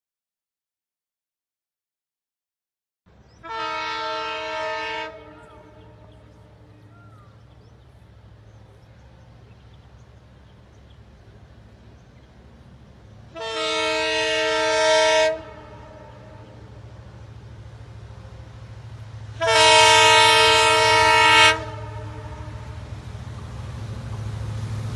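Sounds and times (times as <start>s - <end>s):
train horn blasts: 3.4s - 7.0s, 13.3s - 16.8s, 19.3s - 23.0s.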